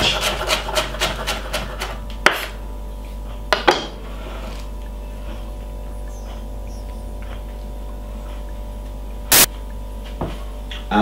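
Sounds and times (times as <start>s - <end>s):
knife chopping on wooden board: 0.0s - 2.5s.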